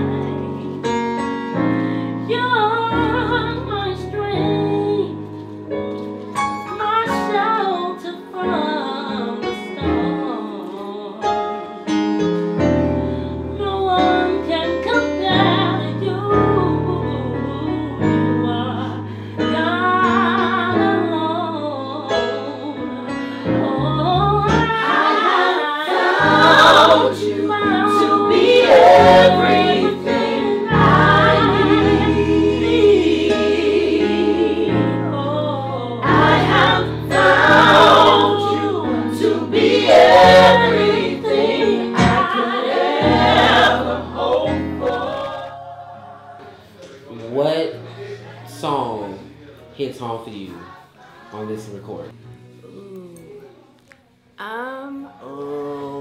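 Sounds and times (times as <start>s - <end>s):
women singing a worship song: 1.6s - 5.6s, 6.6s - 11.8s, 13.2s - 47.1s.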